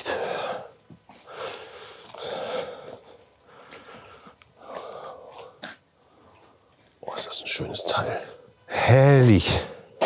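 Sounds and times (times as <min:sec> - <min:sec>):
man breathing hard: 0:00.0 - 0:06.3.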